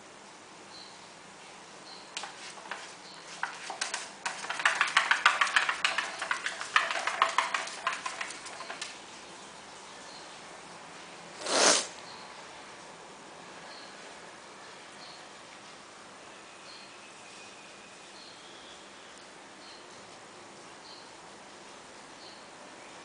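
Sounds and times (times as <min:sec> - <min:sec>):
dog claws scratching plastic: 0:02.2 - 0:09.0
short rush of air: 0:11.4 - 0:12.0.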